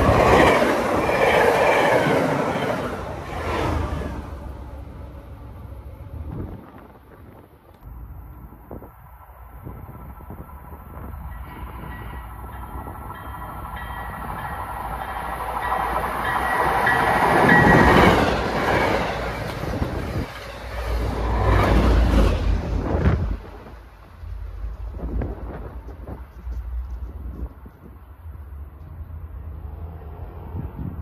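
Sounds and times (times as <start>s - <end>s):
train rumbling and clattering past: 0.0s - 31.0s
steady high ringing: 11.2s - 18.1s.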